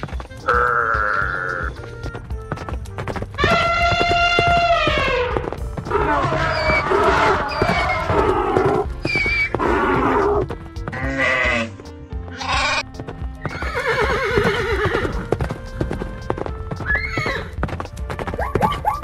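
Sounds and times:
upbeat background music: 0.0 - 19.0
farm animal call effects: 0.4 - 1.9, 3.4 - 15.3, 16.7 - 17.6, 18.3 - 19.0.

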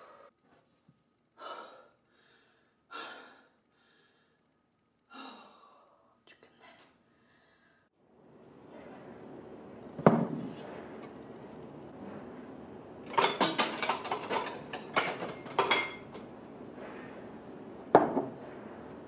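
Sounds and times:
kitchen items clattering and clinking: 13.0 - 16.3.

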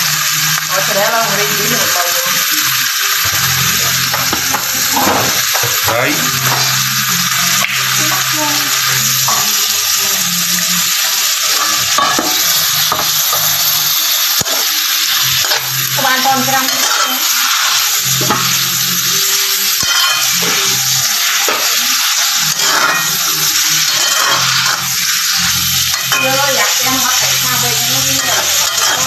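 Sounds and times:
meat sizzling in a wok: 0.0 - 29.0
metal spatula stirring: 19.8 - 21.8, 22.4 - 29.0.

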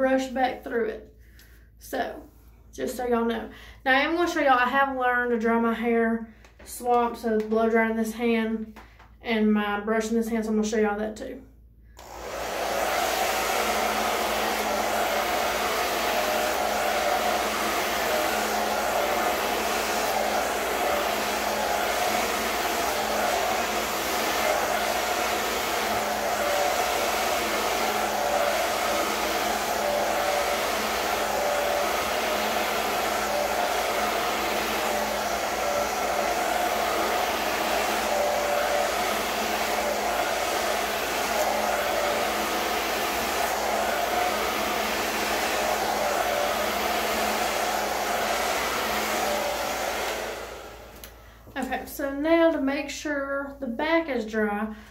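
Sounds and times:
hair dryer running: 12.0 - 52.2.

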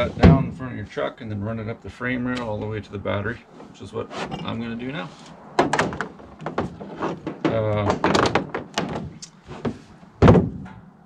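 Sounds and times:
clicks and knocks: 5.6 - 10.9
heavy thunk: 5.6 - 10.9.

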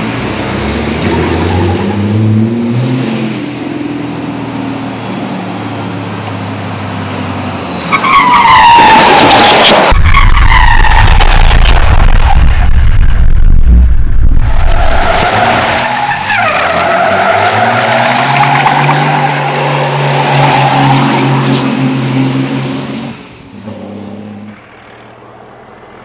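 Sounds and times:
tyres squealing and skidding: 1.0 - 2.2, 7.1 - 13.0, 14.4 - 21.9.

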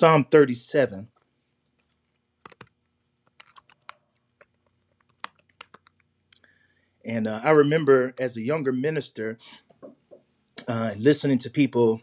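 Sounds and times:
fingers tapping keys: 2.4 - 6.0.

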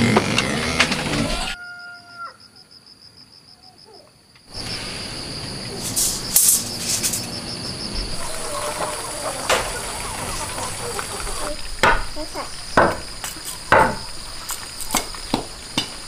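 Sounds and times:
high rattling chirps: 4.5 - 15.8.

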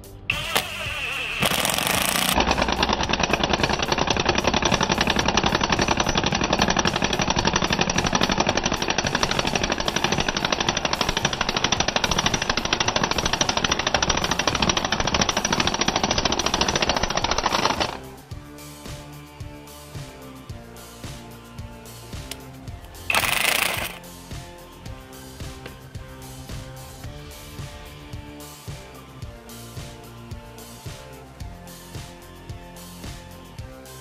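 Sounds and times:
impact driver hammering: 1.4 - 18.0, 23.1 - 24.0.

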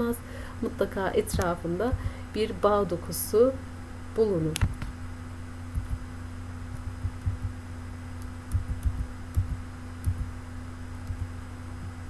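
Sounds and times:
low electrical hum: 0.0 - 12.0
computer mouse clicks: 8.2 - 10.2.

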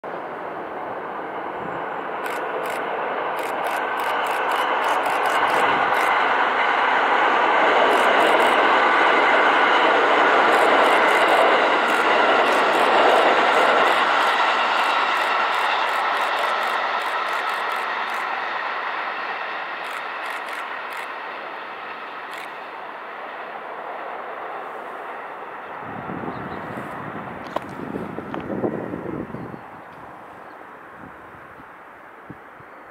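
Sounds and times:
electric train running past: 0.1 - 32.9.

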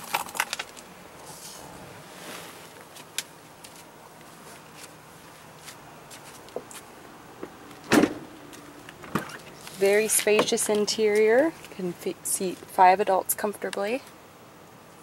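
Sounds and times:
loud short thump: 7.9 - 8.3.

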